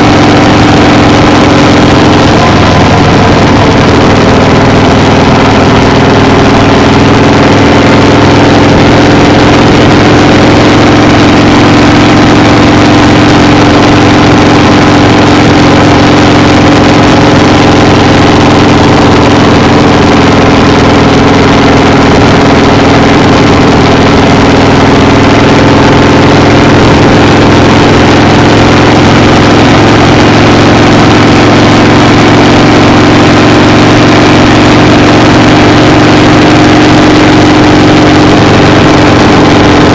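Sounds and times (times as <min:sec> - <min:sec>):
loud engine drone: 0:00.0 - 0:39.9.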